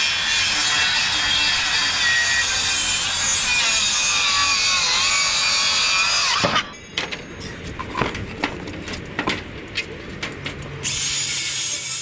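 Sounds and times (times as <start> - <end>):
circular saw cutting plywood: 0.0 - 6.7.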